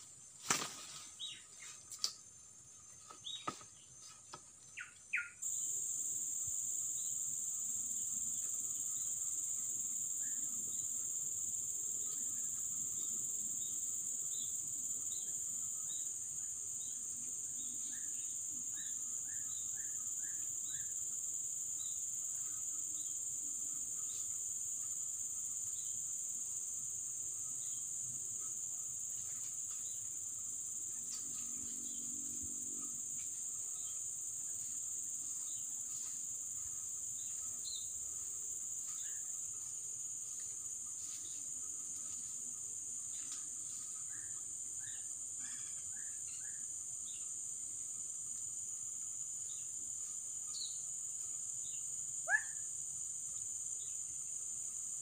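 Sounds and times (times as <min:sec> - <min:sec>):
insects droning: 0:00.0 - 0:55.0
bird chirps: 0:04.7 - 0:05.4.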